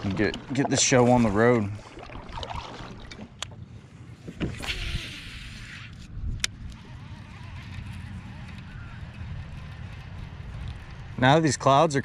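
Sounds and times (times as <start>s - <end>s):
kayak paddle splashing in water: 0.0s - 3.4s
low wind rumble: 0.0s - 12.0s.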